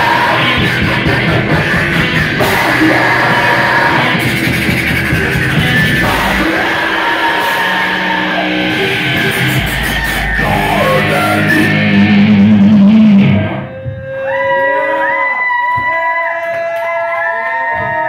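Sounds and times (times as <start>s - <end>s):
live rock band playing: 0.0s - 13.6s
electric guitar: 0.0s - 14.0s.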